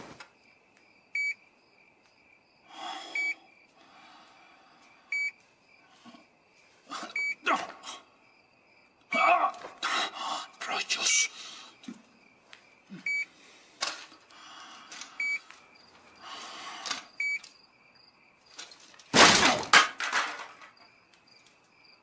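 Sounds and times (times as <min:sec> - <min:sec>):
smoke detector chirps: 0:01.2 - 0:01.4, 0:03.2 - 0:03.4, 0:05.1 - 0:05.4, 0:13.1 - 0:13.3, 0:15.2 - 0:15.4, 0:17.2 - 0:17.4.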